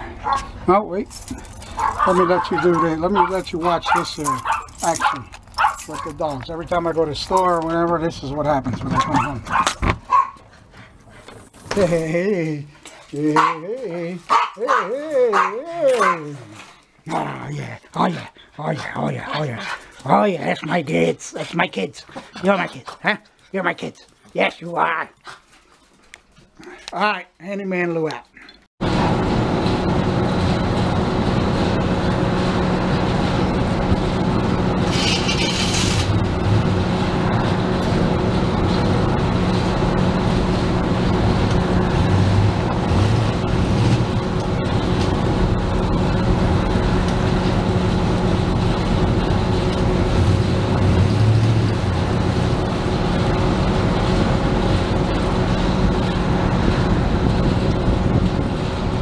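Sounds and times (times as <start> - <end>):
road and tyre noise: 0.0 - 20.9, 28.8 - 59.0
low hum: 28.8 - 59.0
pickup engine running: 28.8 - 59.0.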